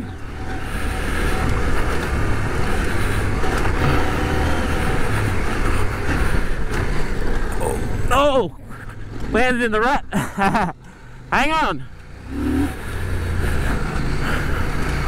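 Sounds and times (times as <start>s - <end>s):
motorcycle engine running: 0.0s - 8.2s, 11.8s - 15.0s
road noise: 0.0s - 15.0s.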